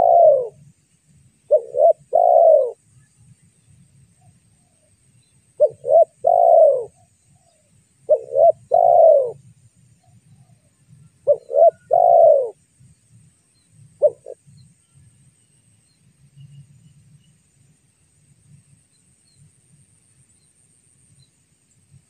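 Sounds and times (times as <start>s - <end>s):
dove cooing: 0.0s - 0.6s, 1.5s - 2.8s, 5.6s - 7.0s, 8.1s - 9.4s, 11.2s - 12.6s, 14.0s - 14.4s.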